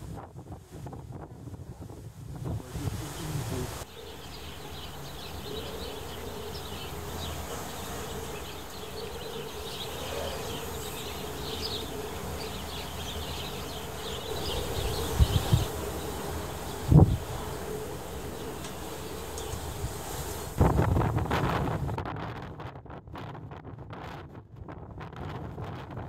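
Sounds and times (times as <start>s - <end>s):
storm wind buffeting microphone: 0.0s - 26.0s.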